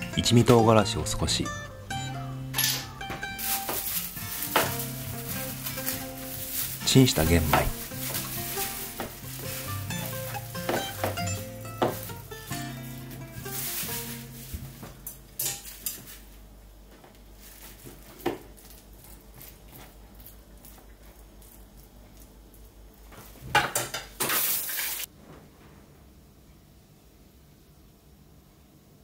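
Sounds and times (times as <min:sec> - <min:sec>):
loud rustling: 0:02.8 - 0:16.3.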